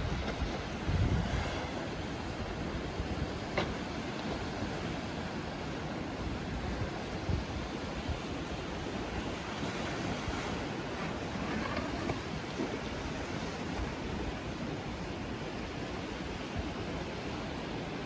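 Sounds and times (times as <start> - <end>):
wind buffeting microphone: 0.0 - 3.6, 6.4 - 14.9
wind and surf rushing: 0.0 - 18.0.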